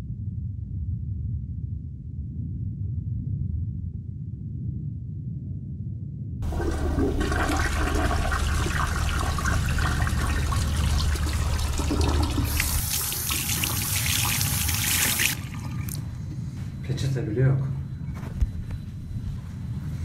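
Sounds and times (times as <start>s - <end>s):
toilet flushing: 6.4s - 16.2s.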